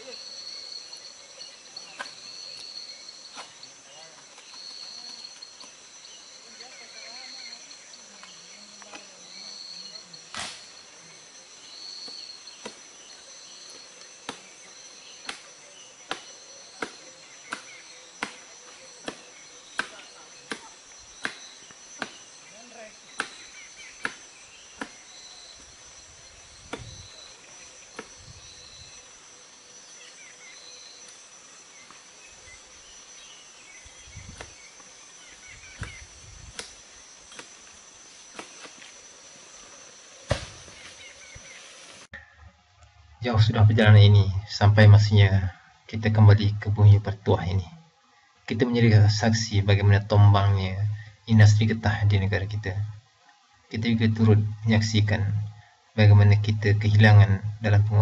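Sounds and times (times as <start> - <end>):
high insect chirring: 0.0 - 58.0
blade chopping: 23.2 - 25.0.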